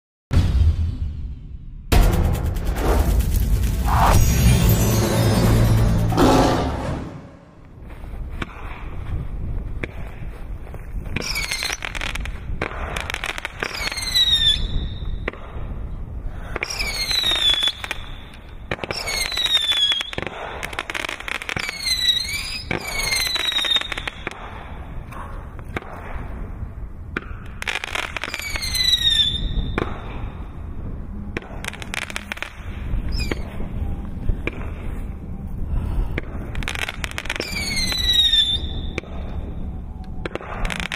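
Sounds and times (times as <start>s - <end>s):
fireworks bangs and crackle: 1.9s - 6.6s, 7.6s - 35.4s, 36.1s - 40.9s
falling firework whistles: 11.2s - 12.2s, 13.0s - 15.4s, 16.6s - 24.5s, 27.6s - 30.2s, 31.4s - 34.6s, 36.6s - 40.9s.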